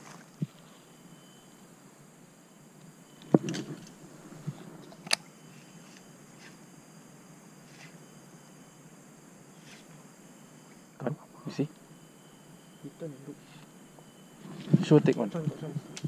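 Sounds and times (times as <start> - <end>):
faint background hiss: 0.0 - 16.0.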